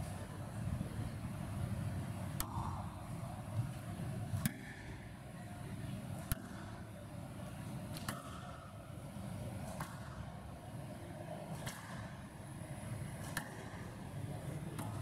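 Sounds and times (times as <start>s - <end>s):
background noise: 0.0s - 15.0s
squash ball cracks: 2.4s - 3.0s, 4.3s - 5.0s, 7.9s - 8.6s, 11.5s - 12.2s, 13.1s - 14.0s.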